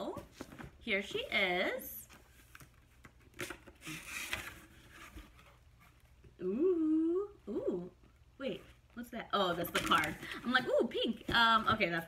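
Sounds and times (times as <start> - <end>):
cardboard and paper rustling: 0.0 - 6.2, 9.4 - 12.0
woman saying ooh: 6.4 - 7.9.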